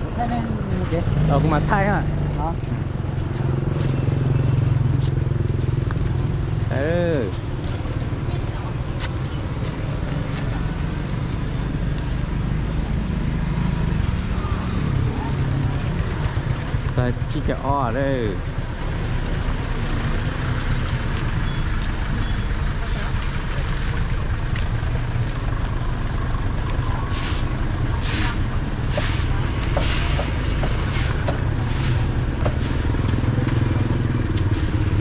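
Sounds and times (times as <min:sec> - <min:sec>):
vehicle engines rumbling: 0:00.0 - 0:35.0
broom sweeping the ground: 0:27.0 - 0:32.3.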